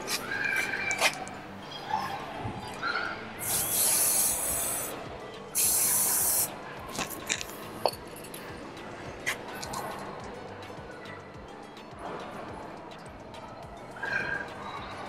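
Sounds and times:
aerosol can spraying: 0:03.4 - 0:05.0, 0:05.6 - 0:06.5.

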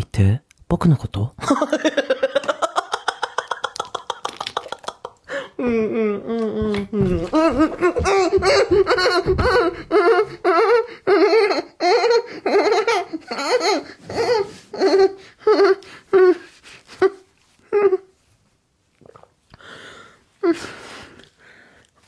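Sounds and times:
man laughing breathily: 0:07.2 - 0:16.4.

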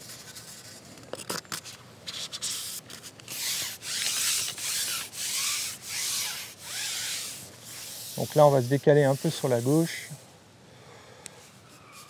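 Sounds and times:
fishing pole rubbing: 0:02.1 - 0:10.2.

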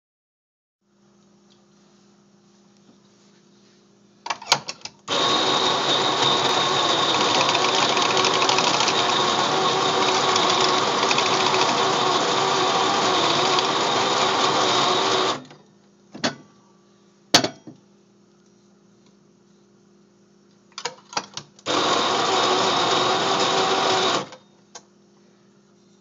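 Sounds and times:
coffee grinder whirring: 0:05.1 - 0:15.5, 0:21.7 - 0:24.4.

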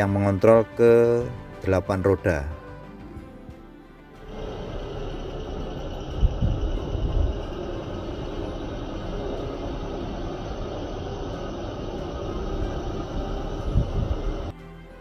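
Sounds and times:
diesel railcar running: 0:04.2 - 0:14.5.

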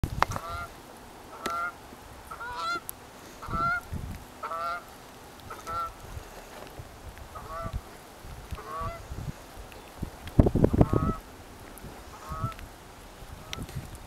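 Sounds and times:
geese honking: 0:00.3 - 0:04.9, 0:05.5 - 0:06.1, 0:07.3 - 0:07.8, 0:08.5 - 0:09.1, 0:10.7 - 0:11.3, 0:12.0 - 0:12.6.

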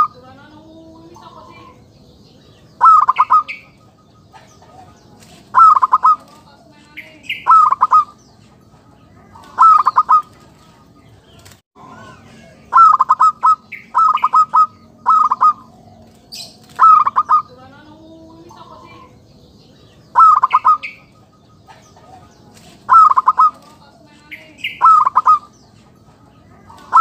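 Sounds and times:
high bird chirps: 0:01.0 - 0:06.4, 0:07.0 - 0:08.5, 0:09.3 - 0:10.4, 0:12.3 - 0:22.0, 0:22.9 - 0:25.8
dove cooing: 0:02.6 - 0:10.9, 0:12.3 - 0:19.2, 0:20.1 - 0:27.0.

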